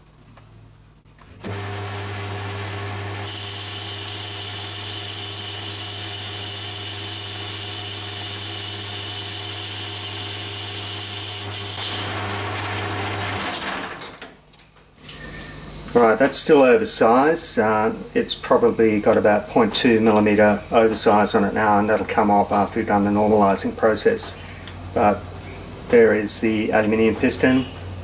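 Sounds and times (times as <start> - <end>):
metal lathe motor humming: 1.3 - 14.0
lathe tool cutting metal: 1.4 - 14.0.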